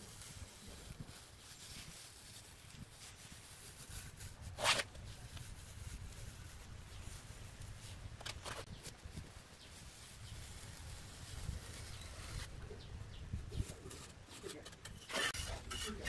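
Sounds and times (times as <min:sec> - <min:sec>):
trowel scraping cement: 0:13.5 - 0:16.0.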